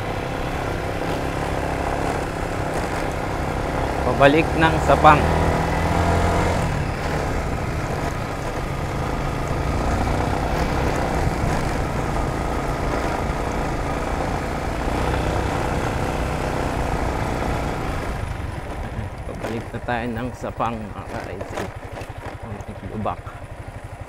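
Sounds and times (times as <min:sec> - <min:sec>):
motor scooter engine running: 0:00.0 - 0:24.0
road noise: 0:00.0 - 0:24.0
wind noise: 0:09.9 - 0:13.9.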